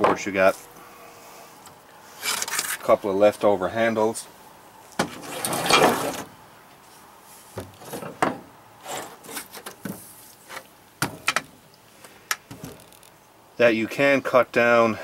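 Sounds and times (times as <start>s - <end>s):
wood scraping: 5.0s - 11.5s.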